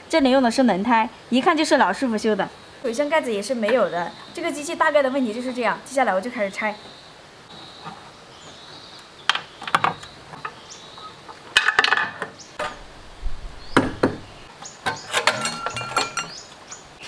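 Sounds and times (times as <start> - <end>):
metal parts clanking and scraping: 11.6 - 12.9, 14.8 - 16.5.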